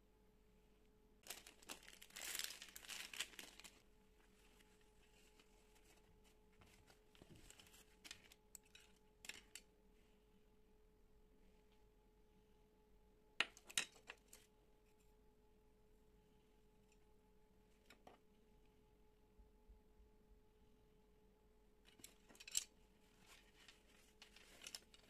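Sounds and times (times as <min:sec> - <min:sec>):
plastic packaging crinkling: 0:01.2 - 0:03.8, 0:21.9 - 0:25.0.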